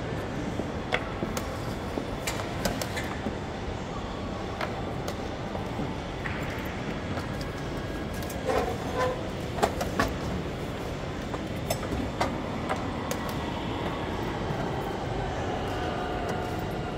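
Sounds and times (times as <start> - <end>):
hall background rumble: 0.0 - 16.9.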